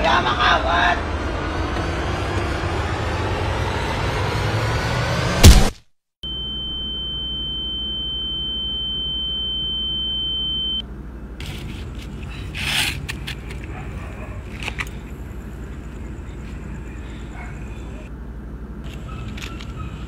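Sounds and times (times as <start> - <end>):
sudden loud hit: 5.1 - 5.8
high-pitched ringing tone: 6.2 - 10.8
low steady rumble: 6.2 - 20.0.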